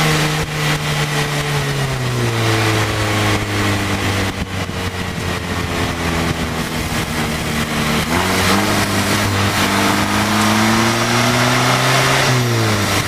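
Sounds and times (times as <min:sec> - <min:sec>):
car engine pulling hard: 0:00.0 - 0:13.0
wind rushing: 0:03.6 - 0:12.9.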